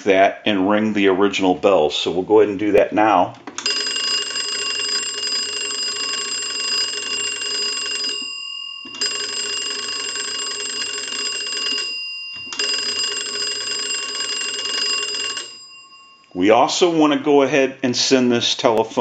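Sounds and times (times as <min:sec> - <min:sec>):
telephone bells ringing: 0:03.6 - 0:17.0.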